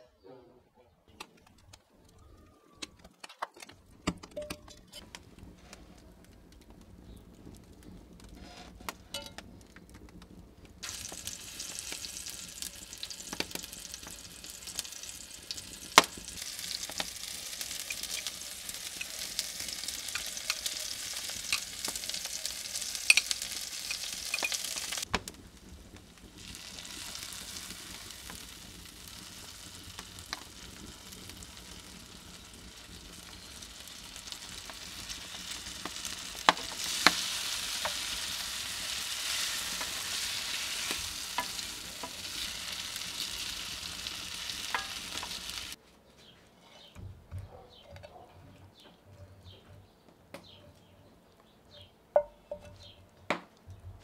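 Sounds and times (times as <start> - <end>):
wood fire crackling and popping: 1.2 - 45.8
food sizzling in skillet: 10.8 - 45.8.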